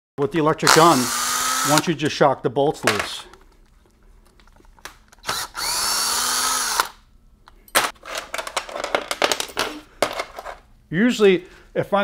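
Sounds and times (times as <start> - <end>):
electric impact gun motor whining: 0.7 - 1.8, 5.2 - 7.0.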